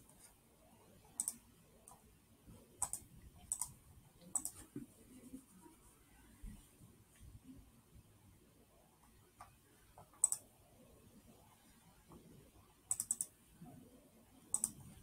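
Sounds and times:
computer mouse clicks: 0:01.1 - 0:02.0, 0:02.8 - 0:04.7, 0:09.0 - 0:10.5, 0:12.9 - 0:13.4, 0:14.5 - 0:14.9.

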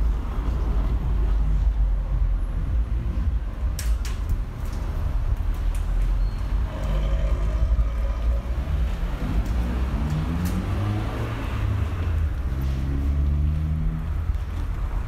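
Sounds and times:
vehicle engine rumbling: 0:00.0 - 0:15.0.

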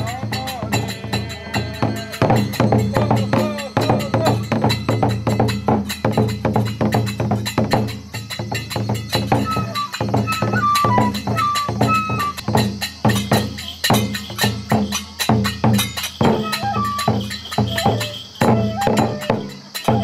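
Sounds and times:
barrel drum beating: 0:00.0 - 0:20.0
hand cymbals clashing: 0:00.0 - 0:20.0
bamboo flute high notes: 0:09.3 - 0:12.6, 0:16.2 - 0:20.0.

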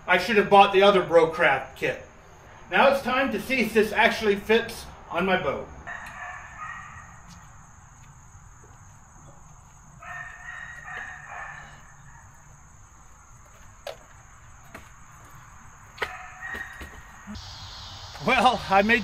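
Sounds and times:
rooster crowing: 0:05.8 - 0:07.3, 0:10.0 - 0:12.6, 0:16.0 - 0:18.1.

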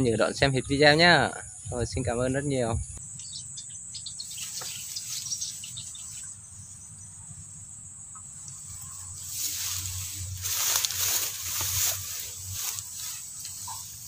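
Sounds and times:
insects chirring: 0:00.0 - 0:14.0
broad rustling noise: 0:04.3 - 0:06.3, 0:08.6 - 0:14.0.

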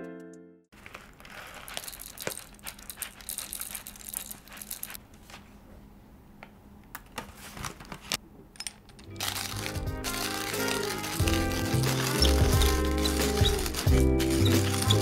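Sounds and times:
coffee beans rattling into grinder: 0:00.8 - 0:05.0, 0:09.2 - 0:15.0.

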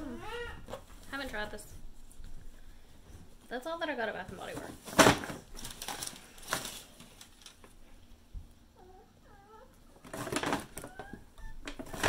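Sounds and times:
rustling: 0:00.0 - 0:08.3.

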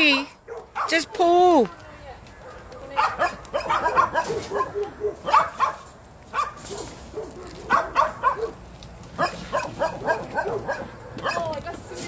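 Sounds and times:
small dog barking and yelping: 0:02.4 - 0:08.6, 0:09.2 - 0:11.5.

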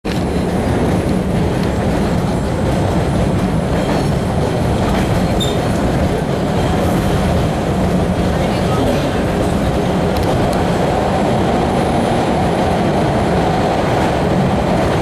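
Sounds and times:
subway car rumbling on rails: 0:00.0 - 0:15.0
high squeak: 0:05.4 - 0:05.6.

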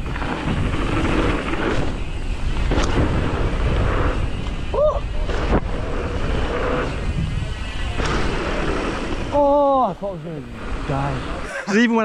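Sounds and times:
wind buffeting microphone: 0:00.0 - 0:11.5
tyres rumbling over snow: 0:00.0 - 0:12.0
bike knocking over bumps: 0:07.9 - 0:09.3.

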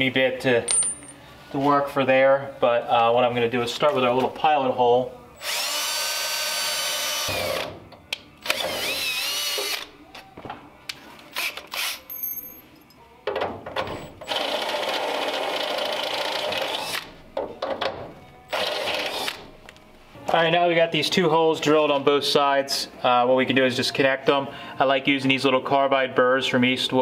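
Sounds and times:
cordless drill boring into steel: 0:05.4 - 0:07.4, 0:08.4 - 0:09.8.

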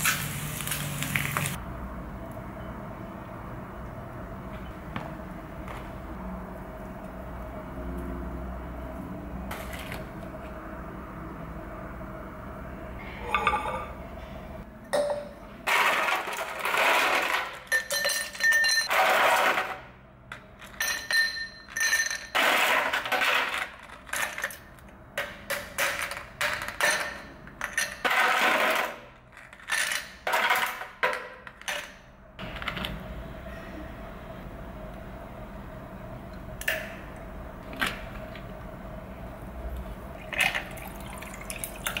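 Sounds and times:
ice cubes clinking against glass: 0:15.7 - 0:19.0.

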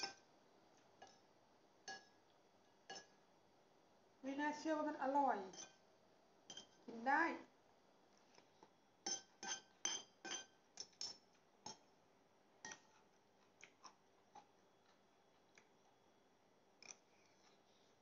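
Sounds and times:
cutlery clinking on a plate: 0:06.5 - 0:06.8, 0:09.1 - 0:11.9, 0:12.6 - 0:13.0.

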